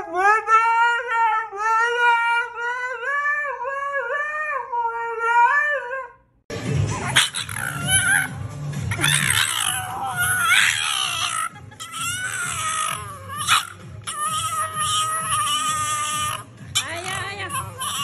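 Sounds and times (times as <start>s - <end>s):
husky howling: 8.9s - 18.0s.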